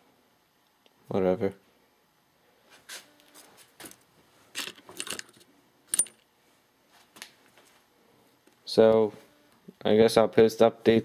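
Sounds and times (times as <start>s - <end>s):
metal parts clinking in plastic tray: 4.6s - 6.2s.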